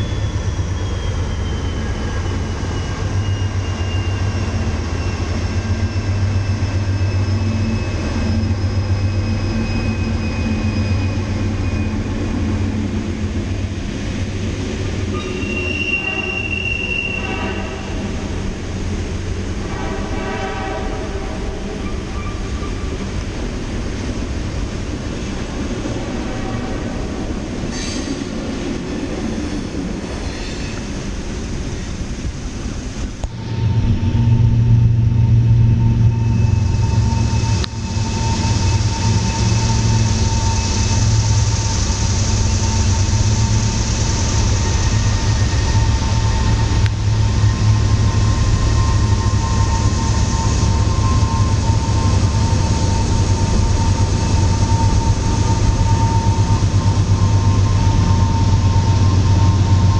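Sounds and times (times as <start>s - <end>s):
high-pitched wheel squeals: 0.0s - 12.5s, 15.0s - 18.2s, 21.7s - 23.1s, 33.4s - 59.9s
freight train rumbling: 0.0s - 59.9s.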